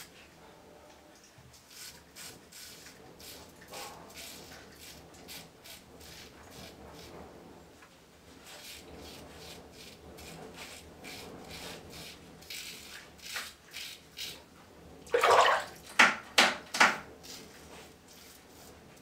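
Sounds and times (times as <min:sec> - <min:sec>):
water splash: 0:15.1 - 0:15.8.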